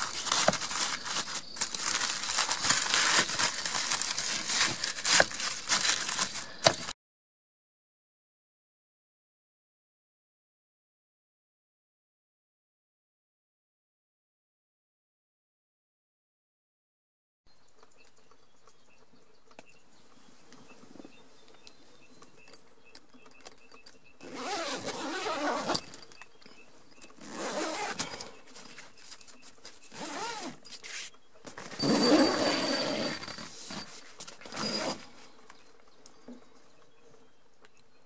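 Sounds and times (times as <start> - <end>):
tent zipper unzipping: 0.0 - 6.4, 24.2 - 26.0, 27.2 - 28.3, 29.9 - 30.6, 31.6 - 35.2
tent fabric rustling: 0.0 - 7.0, 24.2 - 26.0, 27.1 - 35.3.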